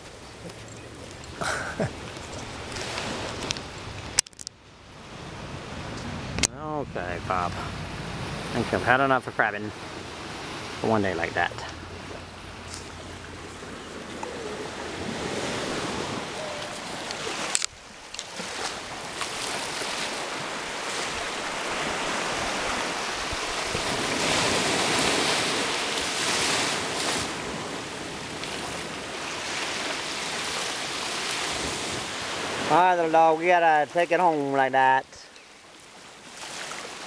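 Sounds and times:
waves washing onto sand: 0.0s - 4.2s, 4.8s - 37.0s.

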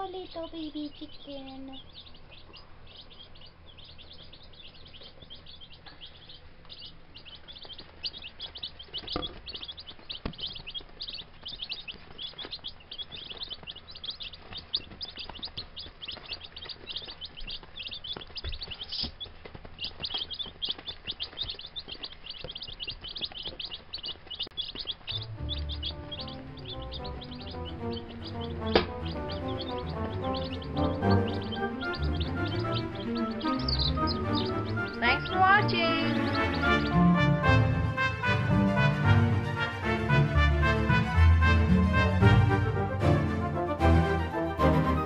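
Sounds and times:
baby chicks peeping: 0.0s - 43.6s.

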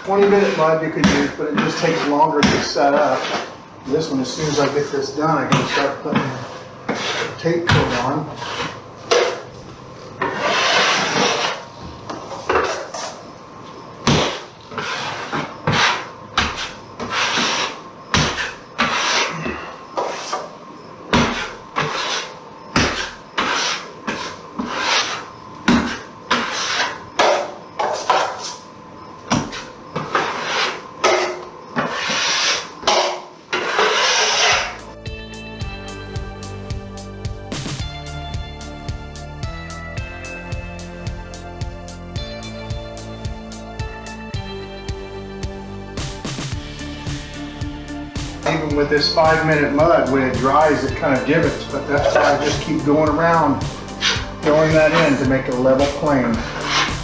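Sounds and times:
drywall knife scraping: 0.0s - 9.5s, 10.2s - 11.7s, 12.3s - 13.2s, 14.0s - 20.5s, 21.1s - 28.7s, 29.3s - 34.8s, 49.0s - 57.0s
guitar music: 34.8s - 57.0s.

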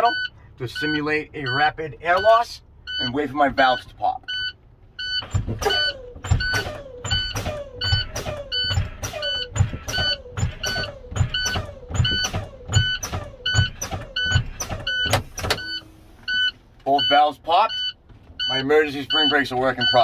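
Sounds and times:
warning buzzer beeping: 0.0s - 20.0s
air brake bursts: 5.2s - 16.4s.

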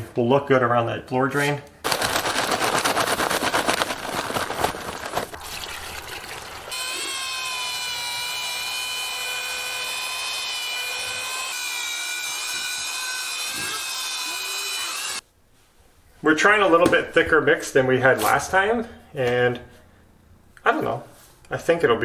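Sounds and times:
powder pouring into plastic bucket: 1.9s - 6.8s
drill with paddle mixer whining: 6.7s - 15.2s.

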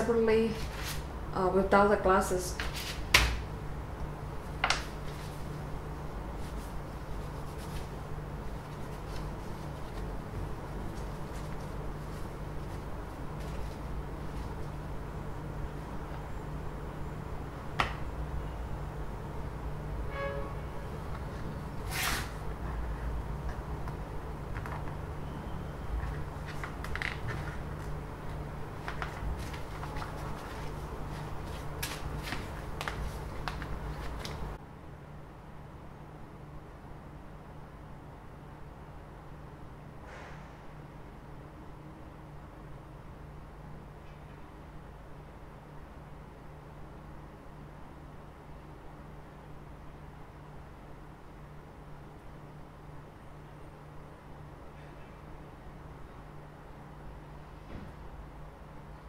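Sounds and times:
low steady hum: 0.0s - 59.0s.

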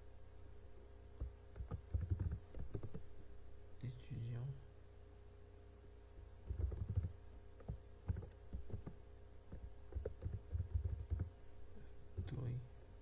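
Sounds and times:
typing on computer keyboard: 1.5s - 3.0s, 6.4s - 11.3s.

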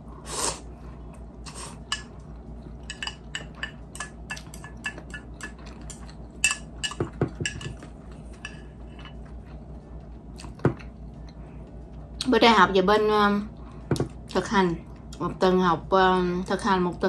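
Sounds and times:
chopsticks clinking on ceramic: 2.8s - 9.3s.

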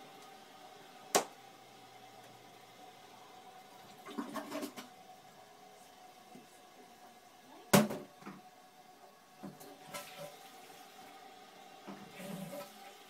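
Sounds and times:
water in toilet tank: 1.4s - 5.5s, 9.4s - 13.0s.

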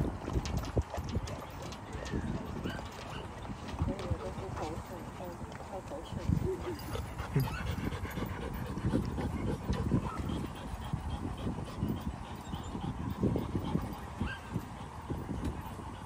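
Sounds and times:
dogs whimpering: 1.4s - 3.4s, 6.4s - 16.0s.

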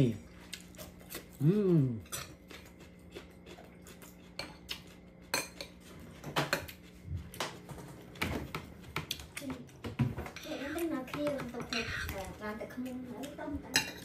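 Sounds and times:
cutlery clinking on ceramic dishes: 13.7s - 14.0s.

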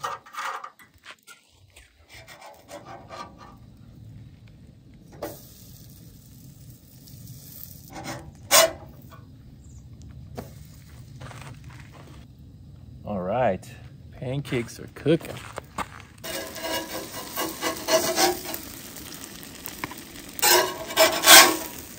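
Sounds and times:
camp stove burner rushing: 1.7s - 9.8s, 16.2s - 21.9s.

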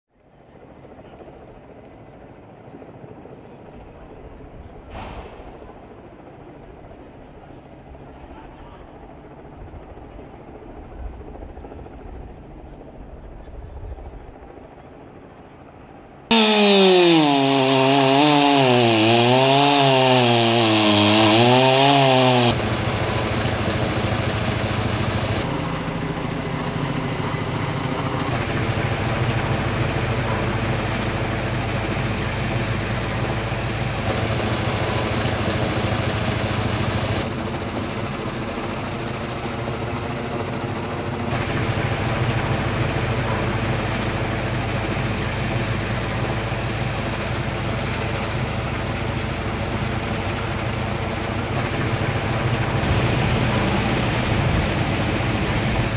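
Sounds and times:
helicopter engine and rotor: 0.2s - 17.6s, 22.5s - 55.9s
chainsaw cutting wood: 16.3s - 25.5s, 33.9s - 37.2s.

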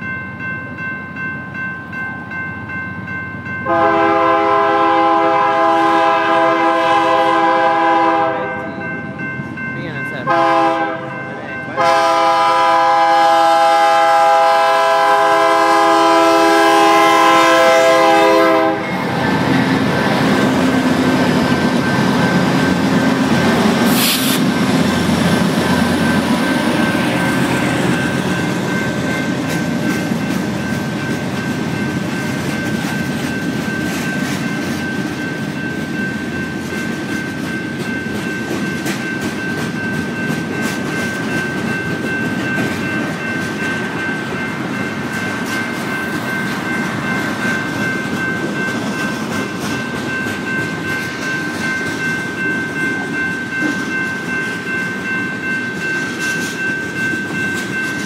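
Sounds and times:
crossing bell ringing: 0.0s - 58.0s
locomotive air horn: 3.7s - 8.6s, 10.3s - 11.2s, 11.8s - 19.1s, 23.9s - 24.5s
train wheels clattering on rail: 11.8s - 58.0s.

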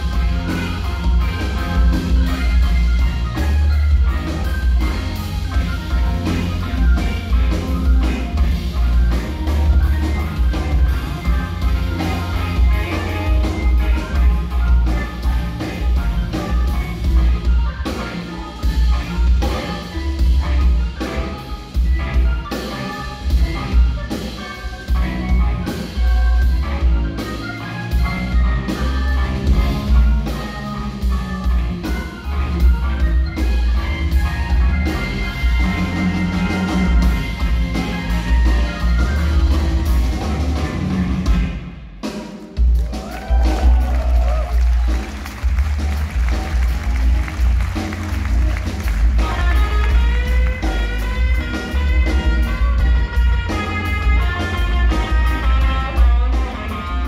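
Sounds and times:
organ: 0.0s - 41.6s
drum kit: 0.0s - 57.0s
electric guitar: 0.0s - 57.0s.

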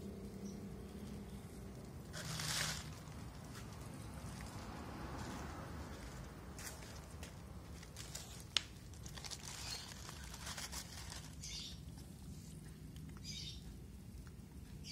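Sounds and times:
kittens crunching dry food: 0.0s - 14.9s
short crinkly bursts: 1.8s - 4.6s, 6.6s - 13.2s.

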